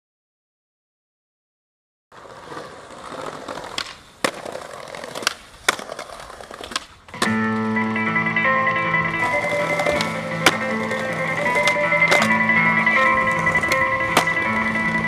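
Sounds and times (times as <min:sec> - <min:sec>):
skateboard wheels rolling on concrete: 0:02.1 - 0:15.0
skateboard clacks on ground: 0:02.2 - 0:07.5, 0:09.2 - 0:12.4, 0:13.1 - 0:15.0
guitar music: 0:07.1 - 0:15.0.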